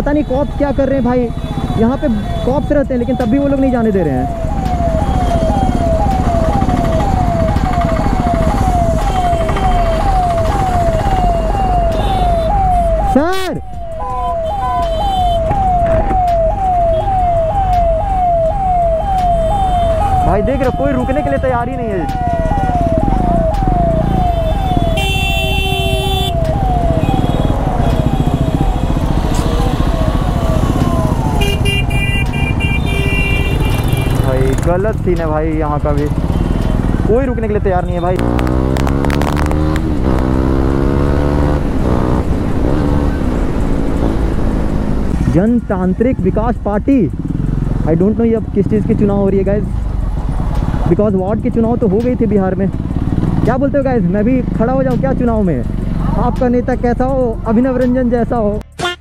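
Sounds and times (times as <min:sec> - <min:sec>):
ambulance siren: 0:00.0 - 0:46.6
low rumble of traffic: 0:00.0 - 0:58.7
vehicle horn honking: 0:14.0 - 0:15.4, 0:24.9 - 0:26.4, 0:31.4 - 0:34.3, 0:58.7 - 0:59.0.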